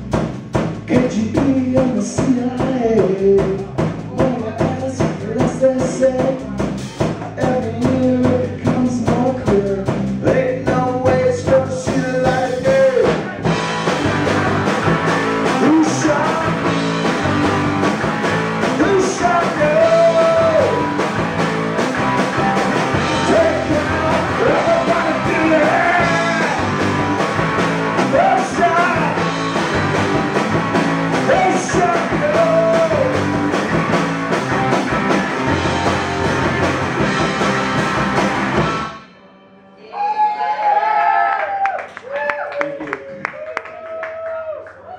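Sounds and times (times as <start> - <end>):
rock band playing: 0.0 - 39.9
person singing: 0.9 - 13.6, 15.4 - 17.7, 18.6 - 21.0, 22.9 - 27.2, 28.0 - 30.0, 31.1 - 33.4.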